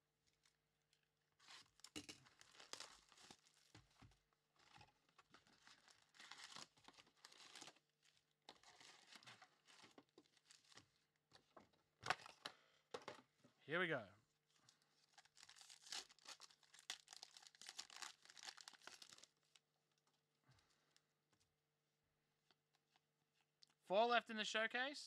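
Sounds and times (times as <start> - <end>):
plastic shrink wrap tearing: 1.4 - 3.6, 5.4 - 10.8, 15.0 - 19.6
foil packs crackling: 15.1 - 19.6.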